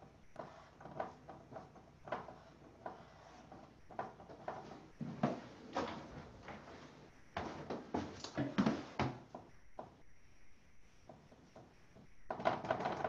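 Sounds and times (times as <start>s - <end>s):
pencil scratching on paper: 0.0s - 8.0s.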